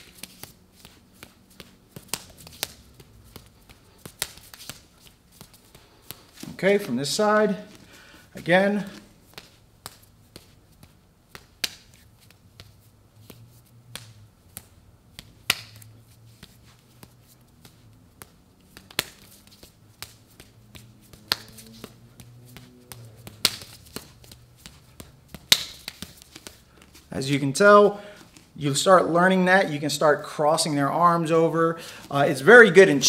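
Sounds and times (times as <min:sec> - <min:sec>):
hands slapping together: 0:00.0 - 0:06.5, 0:11.3 - 0:27.0.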